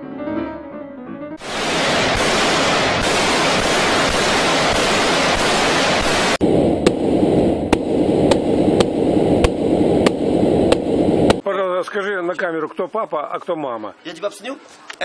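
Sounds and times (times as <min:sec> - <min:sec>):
automatic rifle fire: 0:01.4 - 0:06.4.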